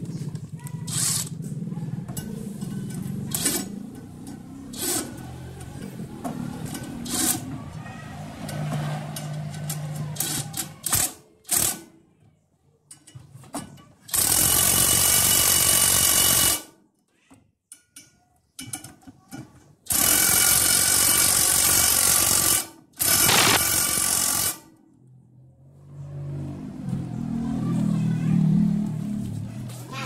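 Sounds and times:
impact driver running on bolts: 14.1 - 16.7, 19.9 - 24.6.

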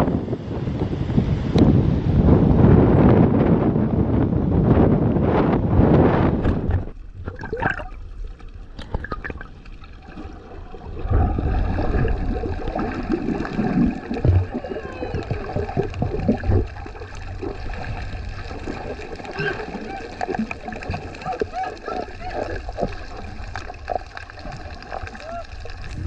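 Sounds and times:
low churning rumble: 0.0 - 26.0
underwater gurgling and bubbling: 4.7 - 26.0
faint underwater clicks: 6.4 - 10.2.

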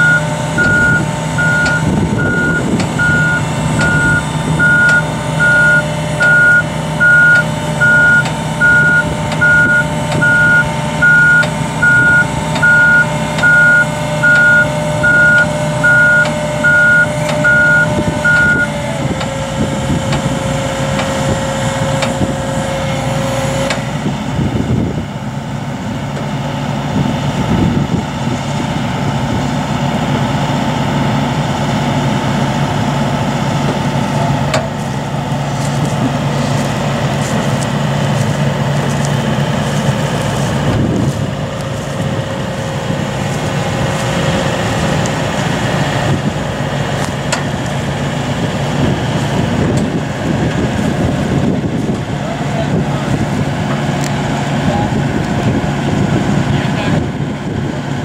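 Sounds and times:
steady warning tone: 0.0 - 23.9
diesel engine running: 0.0 - 58.0.

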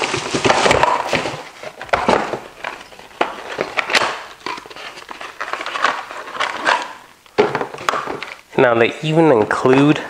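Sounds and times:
cardboard box scraping and rustling: 0.0 - 3.8.

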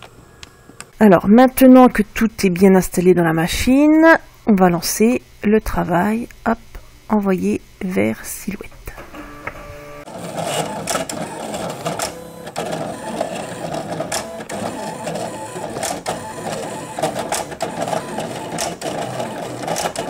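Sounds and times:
machine motors whirring: 8.9 - 20.0.

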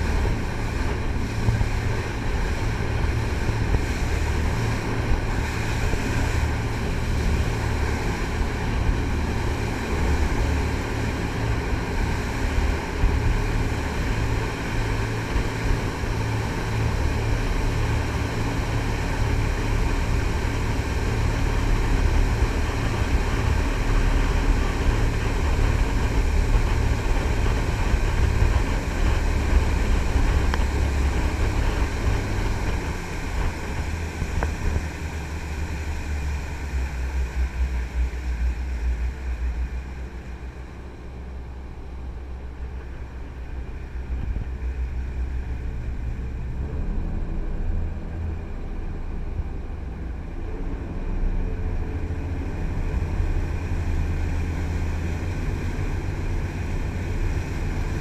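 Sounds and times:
boat engine drone: 0.0 - 58.0
water rushing around hull: 0.0 - 58.0.

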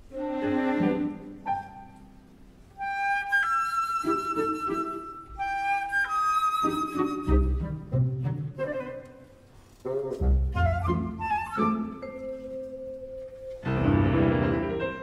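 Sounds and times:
woodwind melody over strings: 0.0 - 15.0.

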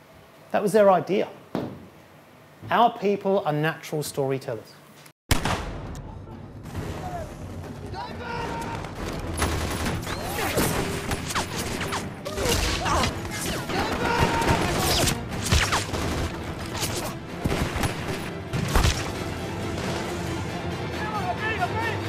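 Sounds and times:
music: 5.6 - 22.0
gunfire bursts: 12.7 - 19.2.

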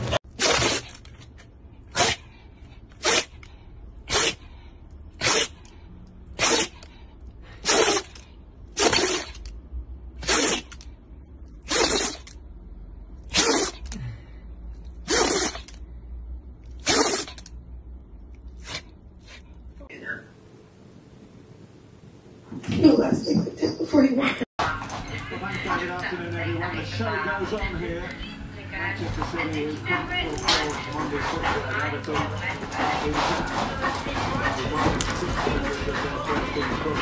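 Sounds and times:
dog sneezing: 0.4 - 1.0, 1.9 - 2.3, 3.0 - 3.4, 4.0 - 4.5, 5.2 - 5.7, 6.4 - 6.9, 7.5 - 9.4, 10.2 - 10.8, 11.6 - 12.3, 13.3 - 14.0, 15.0 - 15.8, 16.8 - 17.5, 18.6 - 19.4.

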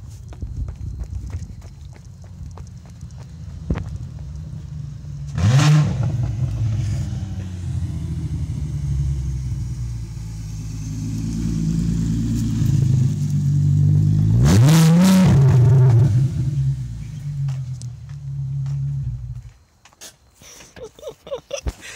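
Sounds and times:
car exhaust revving and droning: 2.0 - 19.5.

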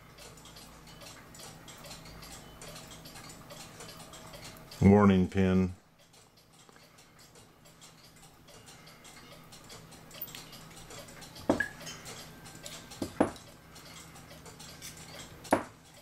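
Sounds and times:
small metal parts clicking: 6.0 - 16.0
sharp metallic clinks: 7.9 - 16.0.

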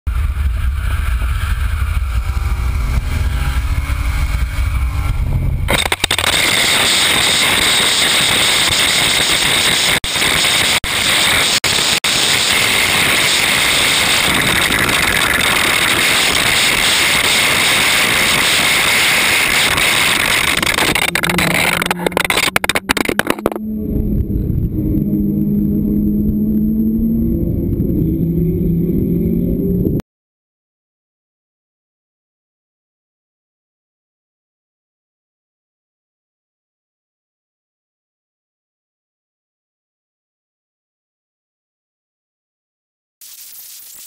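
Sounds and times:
bumper scraping on asphalt: 0.1 - 23.6
wind and road noise: 0.1 - 30.0.

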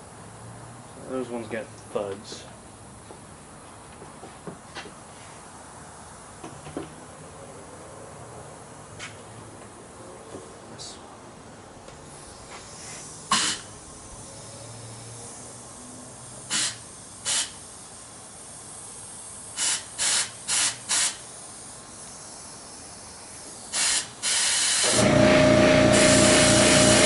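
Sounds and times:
compressed air blasts hissing: 12.0 - 27.0.

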